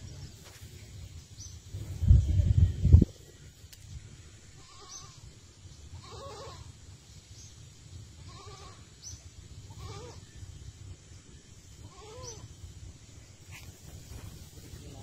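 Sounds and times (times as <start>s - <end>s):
goat bleating: 5.9s - 6.7s, 8.2s - 8.8s, 9.7s - 10.2s, 11.8s - 12.4s.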